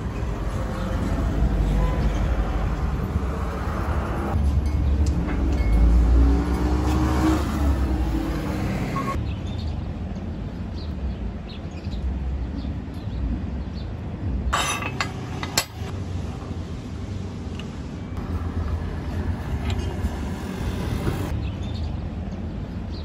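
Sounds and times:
road traffic rumble: 0.0s - 23.0s.

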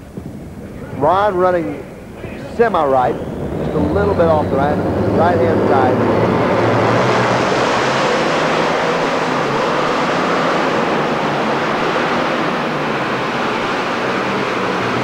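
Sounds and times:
tractor engine roaring: 0.0s - 15.0s.

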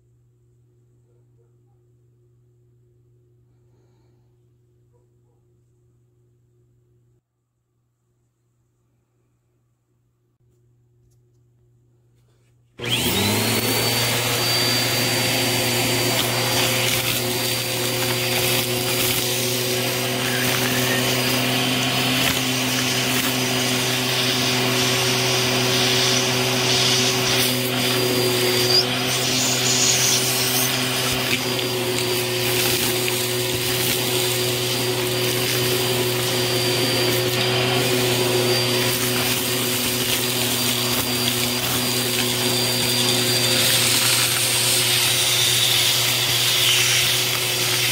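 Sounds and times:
vacuum cleaner running: 12.8s - 47.9s
debris crackling through nozzle: 16.0s - 25.0s, 25.8s - 47.9s.

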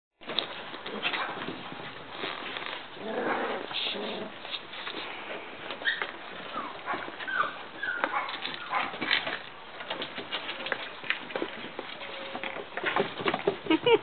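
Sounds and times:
puppies whimpering: 5.8s - 8.8s.

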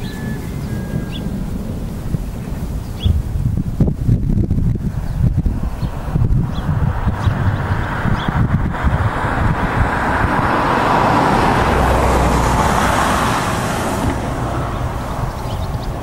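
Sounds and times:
steady low rumble: 0.0s - 16.0s
car passing: 4.8s - 16.0s.

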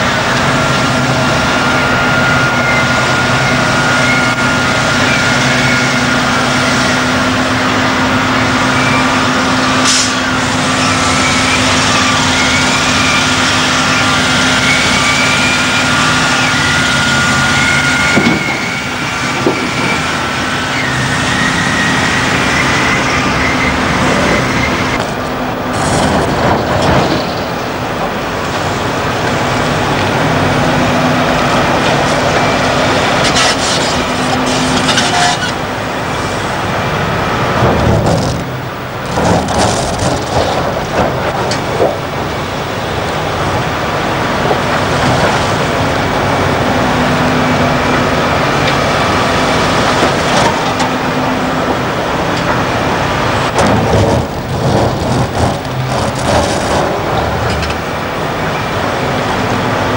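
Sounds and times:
dump truck diesel engines: 0.0s - 59.9s
rock crashing and clattering: 37.6s - 42.1s, 53.5s - 57.8s.

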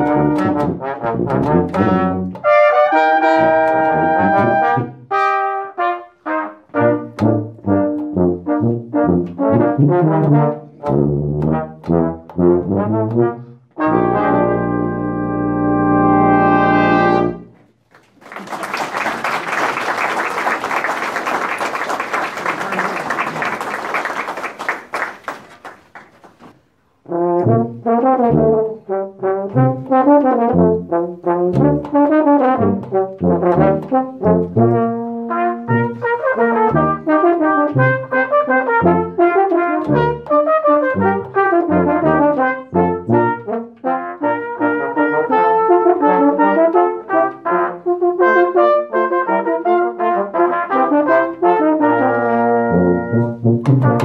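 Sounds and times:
brass ensemble playing: 0.0s - 17.7s, 27.0s - 54.0s
audience applause: 17.9s - 26.5s.

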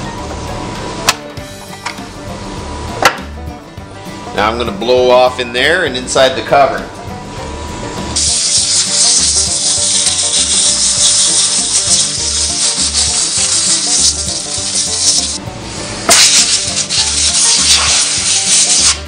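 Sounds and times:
air blow gun hissing: 8.2s - 19.0s.

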